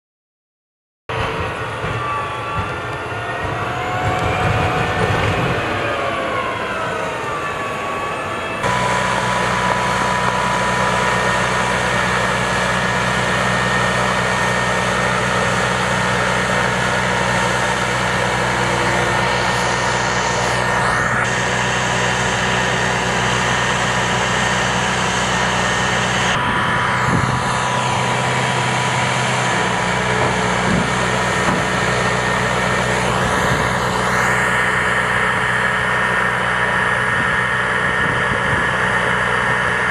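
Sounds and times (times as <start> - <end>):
high steady whine: 1.1 - 39.9
hydraulic arm whining: 1.1 - 39.9
vehicle engine running under load: 1.1 - 39.9.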